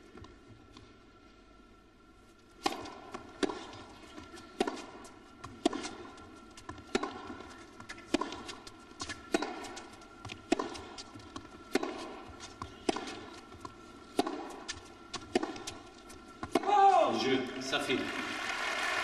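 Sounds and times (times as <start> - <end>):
tennis ball bouncing: 2.6 - 16.8
racket hitting tennis ball: 2.6 - 17.0.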